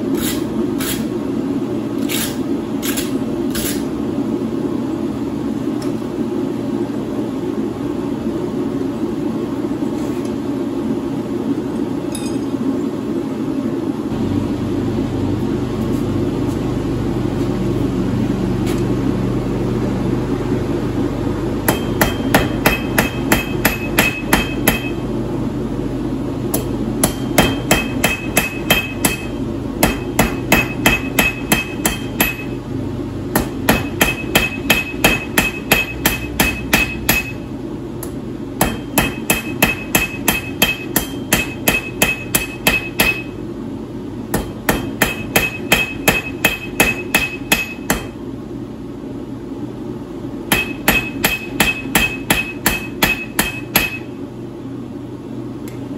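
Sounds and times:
steady low rumble: 12.8s - 39.0s
hammer ringing on anvil: 21.7s - 25.0s, 27.0s - 32.6s, 33.4s - 37.4s, 38.6s - 43.4s, 44.3s - 48.2s, 50.5s - 54.1s.

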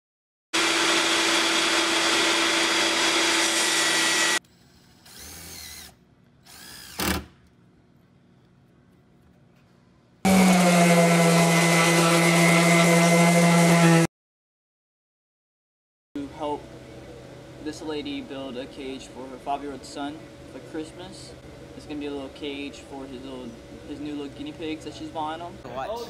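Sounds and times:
orbital sander humming: 0.6s - 4.4s, 10.3s - 14.1s
electric power tool running: 0.6s - 7.2s, 10.3s - 14.1s.

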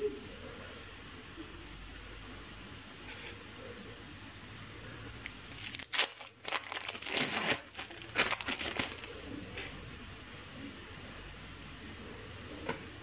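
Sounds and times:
plastic wrapper crinkling: 5.2s - 9.7s.

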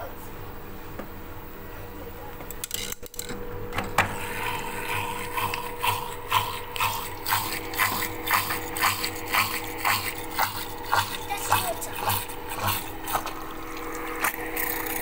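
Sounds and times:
washing machine humming: 0.0s - 15.0s.

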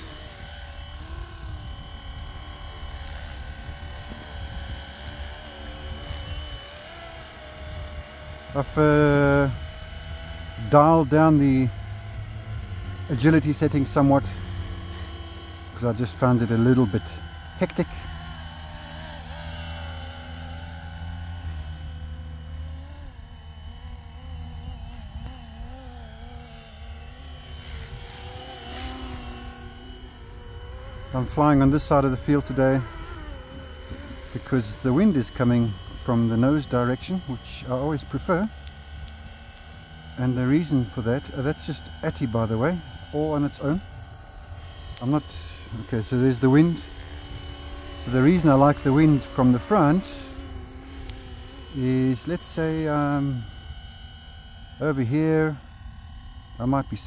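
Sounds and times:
wind rumble on microphone: 0.0s - 14.6s
model helicopter motor whine: 0.0s - 57.0s.

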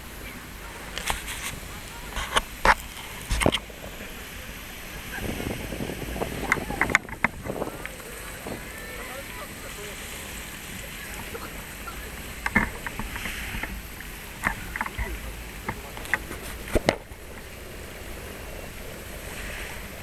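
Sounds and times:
sharp clicks and knocks: 6.4s - 8.6s, 12.4s - 13.8s, 14.4s - 17.5s.

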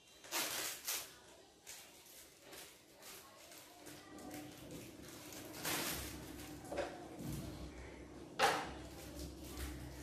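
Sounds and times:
plastic packaging rustling: 0.0s - 7.5s.

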